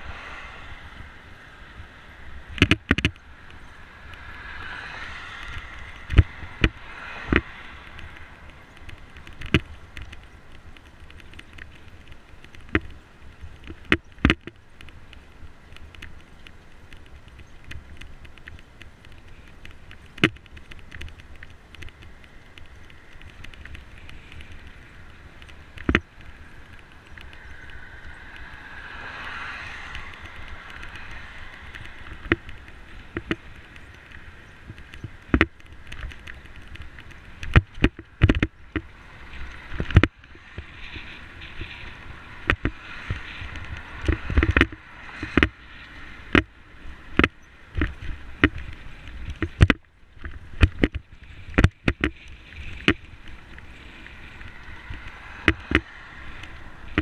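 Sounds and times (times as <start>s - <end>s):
rushing wind: 0.0s - 57.0s
bicycle knocks and rattles: 2.5s - 3.6s, 5.5s - 13.0s, 13.6s - 14.6s, 25.4s - 27.7s, 29.6s - 57.0s.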